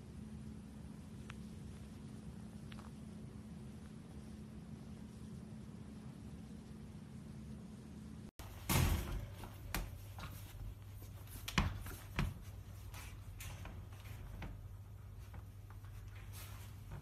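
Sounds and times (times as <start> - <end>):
steady low hum: 0.0 - 17.0
knocks and thumps in wire crate: 8.4 - 17.0.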